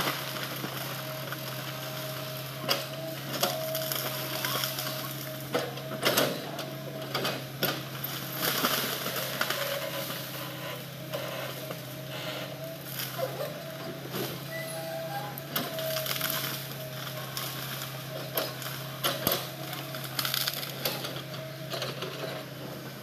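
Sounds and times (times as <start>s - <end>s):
excavator diesel engine running: 0.0s - 23.0s
hydraulic whine: 9.6s - 18.5s.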